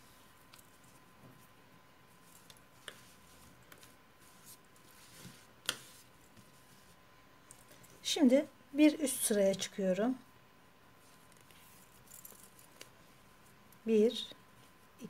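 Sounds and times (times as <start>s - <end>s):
crochet hook rustling cord: 0.0s - 8.0s, 11.0s - 13.9s.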